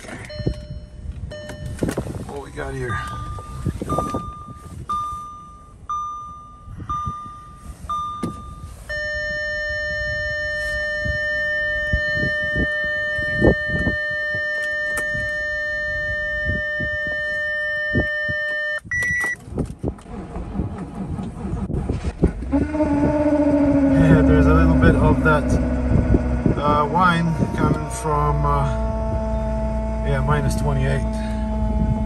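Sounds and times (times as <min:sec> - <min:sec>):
car warning chime beeping: 0:00.1 - 0:19.4
steady warning tone: 0:02.5 - 0:19.4, 0:22.5 - 0:32.0.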